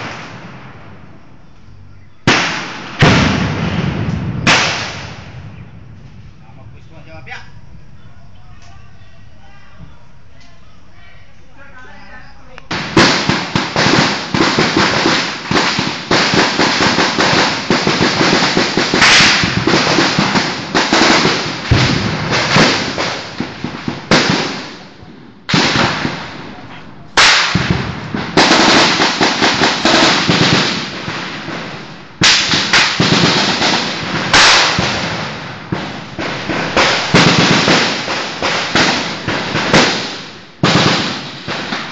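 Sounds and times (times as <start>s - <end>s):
automatic rifle fire: 2.3s - 5.6s, 12.7s - 24.8s, 27.2s - 31.6s, 32.2s - 41.9s.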